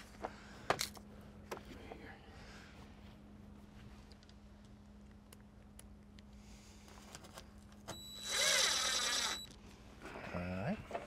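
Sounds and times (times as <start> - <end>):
cordless drill whining: 7.9 - 9.6
drill click: 7.9 - 9.6.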